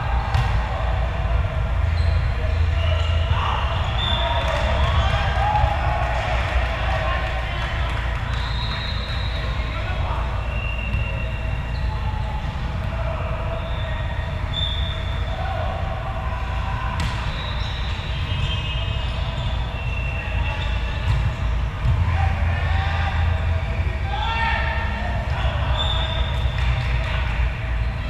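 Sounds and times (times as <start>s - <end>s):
volleyballs struck and bouncing: 0.0s - 1.9s, 16.9s - 18.4s
low rumble of big hall: 0.0s - 28.0s
sneakers squeaking on court floor: 1.9s - 5.1s, 10.5s - 12.5s, 17.0s - 22.0s.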